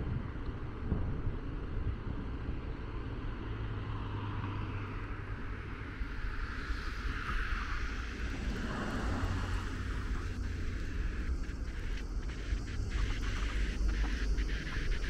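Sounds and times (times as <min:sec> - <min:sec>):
street traffic: 0:00.0 - 0:15.0
passing vehicle engine hum: 0:02.5 - 0:14.7
wind buffeting microphone: 0:05.5 - 0:15.0.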